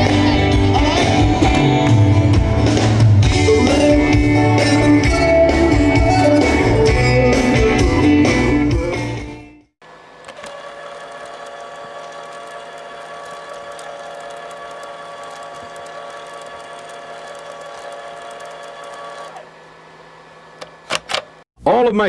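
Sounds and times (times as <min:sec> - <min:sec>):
label maker motor whine: 0:09.8 - 0:21.4.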